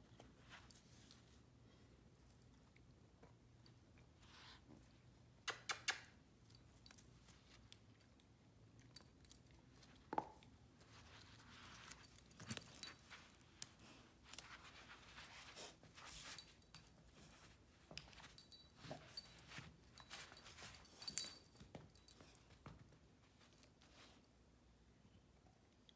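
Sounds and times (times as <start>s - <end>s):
soft clicks and rustles: 5.7s - 24.3s
collar fittings jingling: 11.1s - 13.4s, 16.2s - 22.5s.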